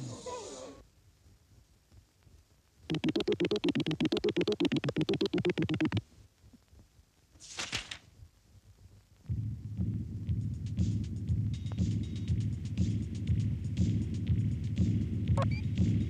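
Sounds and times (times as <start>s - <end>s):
rapid electronic pulsing: 2.9s - 6.0s.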